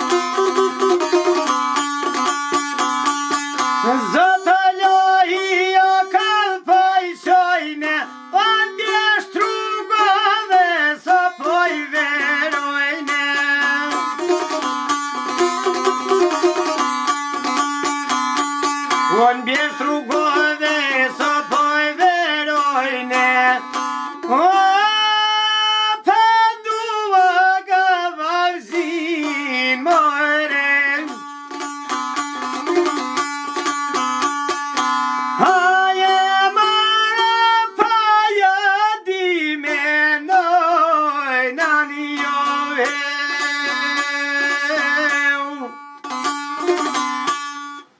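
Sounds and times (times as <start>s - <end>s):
plucked string instrument: 0.0s - 47.9s
person singing ornamented notes: 3.8s - 14.5s, 19.1s - 31.2s, 35.4s - 45.8s.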